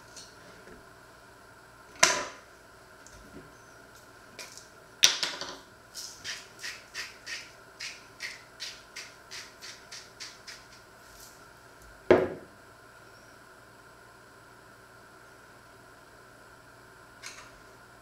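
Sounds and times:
spice mill grinding: 0:06.0 - 0:10.9
knock on wooden counter: 0:12.1 - 0:12.5.

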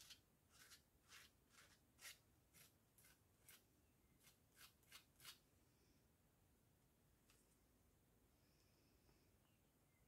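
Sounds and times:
palette knife scraping: 0:00.0 - 0:05.4.

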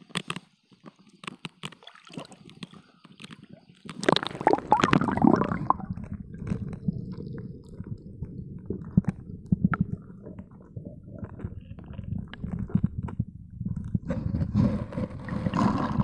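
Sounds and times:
low rumble: 0:05.5 - 0:15.2
phone pouch rubbing and scraping: 0:11.4 - 0:16.0.

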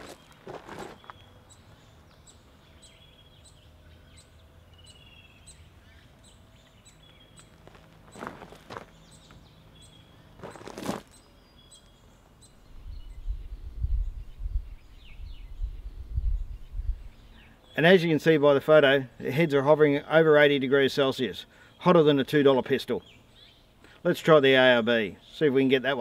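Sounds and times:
footsteps on gravel: 0:00.0 - 0:01.3, 0:07.4 - 0:09.5, 0:10.4 - 0:11.2
birds chirping: 0:00.0 - 0:26.0.

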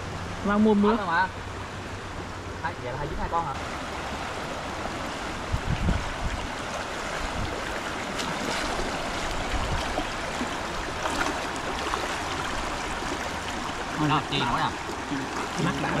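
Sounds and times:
stream rushing: 0:00.0 - 0:16.0.

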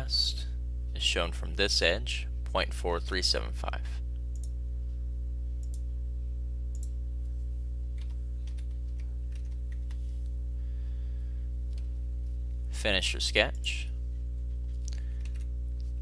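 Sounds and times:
steady low hum: 0:00.0 - 0:16.0
computer mouse clicks: 0:04.3 - 0:04.5, 0:05.6 - 0:05.8, 0:06.7 - 0:06.9.

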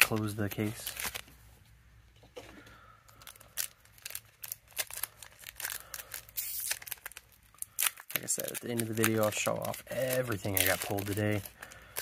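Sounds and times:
foil wrapper crinkling: 0:03.1 - 0:12.0.

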